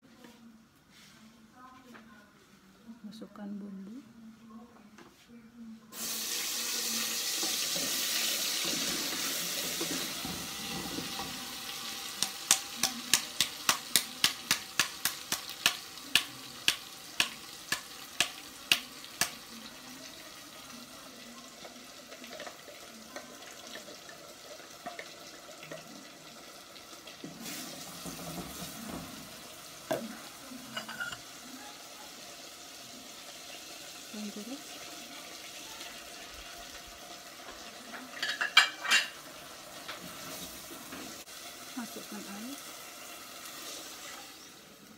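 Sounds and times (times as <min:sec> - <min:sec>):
paste sizzling in hot oil: 0:06.0 - 0:44.9.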